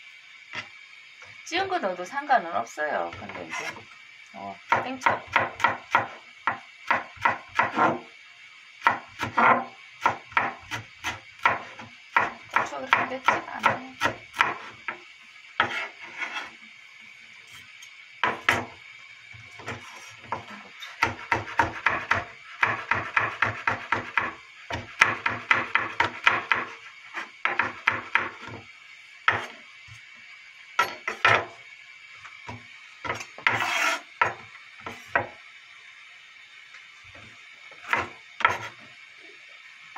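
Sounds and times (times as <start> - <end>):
knife scraping board: 3.1 - 3.8, 7.2 - 8.0, 9.2 - 14.9, 15.6 - 16.6, 19.5 - 28.6, 29.3 - 29.6, 33.0 - 35.3, 37.7 - 38.9.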